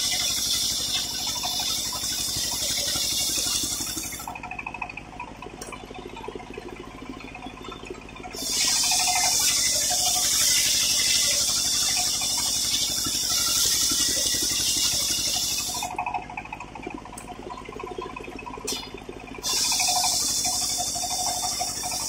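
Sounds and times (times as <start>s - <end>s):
circular saw cutting wood: 0.0s - 4.4s, 8.3s - 16.3s, 18.7s - 22.0s
saw motor humming: 0.0s - 4.9s, 7.8s - 22.0s.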